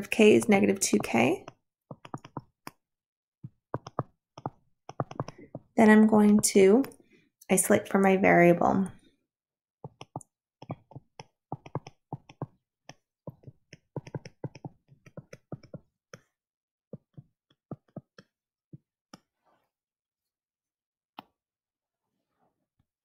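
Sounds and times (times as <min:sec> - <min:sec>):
stylus tapping on touchscreen: 0:00.9 - 0:02.8, 0:03.4 - 0:06.4, 0:09.8 - 0:16.3.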